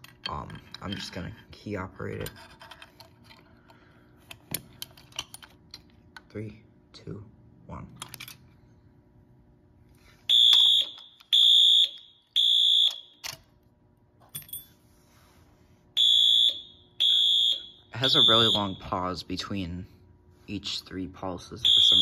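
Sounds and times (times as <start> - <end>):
fire alarm beeping: 10.3 - 13.2, 16.0 - 19.0, 21.6 - 22.0.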